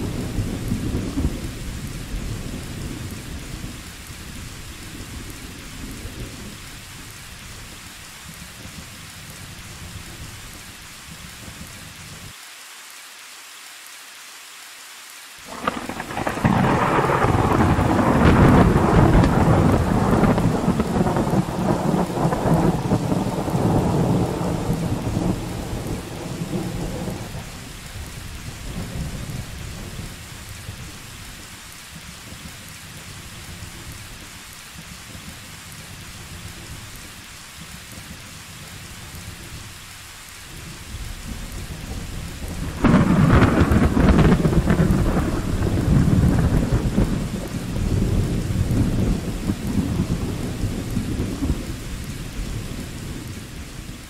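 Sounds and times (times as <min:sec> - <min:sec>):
loud thunderclap: 0:00.0 - 0:06.7, 0:15.4 - 0:31.0, 0:40.7 - 0:54.0
thunder rumble: 0:00.0 - 0:11.8, 0:15.4 - 0:54.0
steady rain falling: 0:00.0 - 0:54.0.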